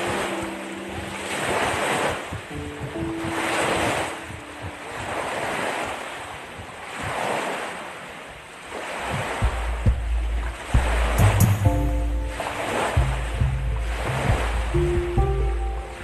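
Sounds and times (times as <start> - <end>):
lake waves washing ashore: 0.0 - 16.0
wind rumbling on microphone: 0.0 - 16.0
microphone thumps: 9.1 - 11.9, 13.0 - 15.2.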